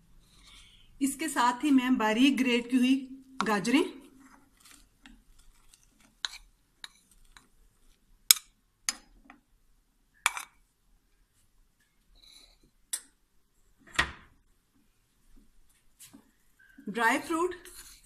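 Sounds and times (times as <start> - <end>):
carrots scraped out: 4.2 - 7.5.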